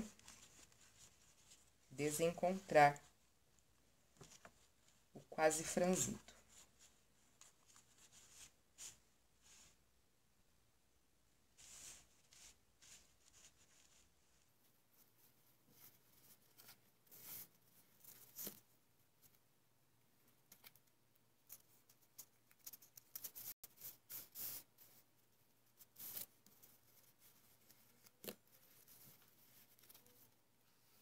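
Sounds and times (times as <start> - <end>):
ribbon rustling and crinkling: 0.0 - 1.9.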